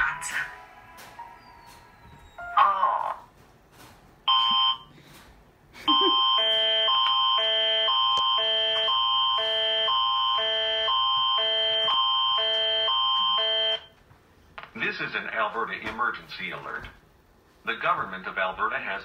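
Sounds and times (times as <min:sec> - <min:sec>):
emergency alert tones: 0:04.3 - 0:04.9, 0:05.8 - 0:13.9.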